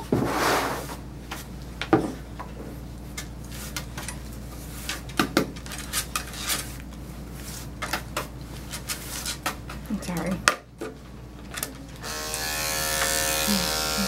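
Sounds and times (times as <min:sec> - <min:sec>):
brush sweeping on rubber: 0:00.1 - 0:01.0.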